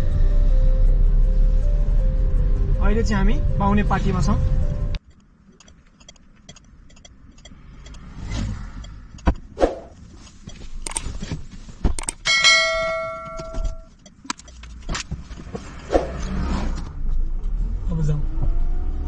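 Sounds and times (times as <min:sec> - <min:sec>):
bell-like ding: 0:12.2 - 0:13.9.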